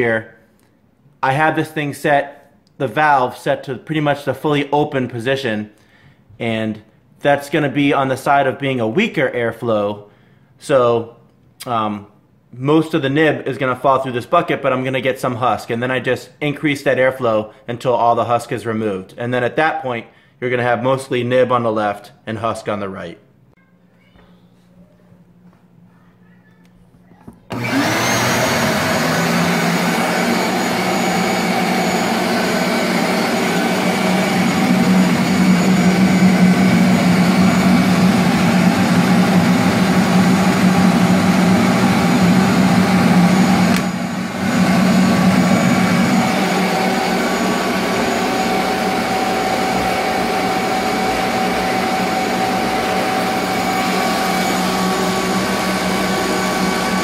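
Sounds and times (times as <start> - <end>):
vacuum cleaner whining: 27.4 - 57.0.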